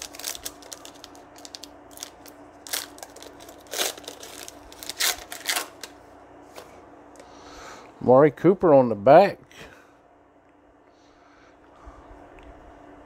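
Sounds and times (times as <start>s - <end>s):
foil wrapper tearing and crinkling: 0.0s - 6.0s.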